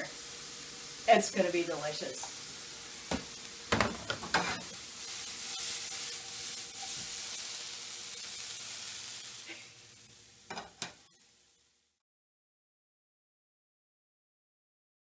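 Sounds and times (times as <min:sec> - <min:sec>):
vegetables sizzling in a frying pan: 0:00.0 - 0:12.0.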